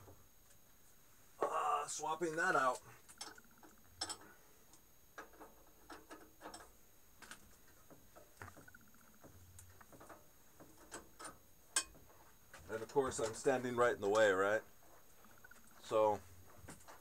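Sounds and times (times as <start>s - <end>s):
faint clicks and taps of tools: 2.8s - 13.4s.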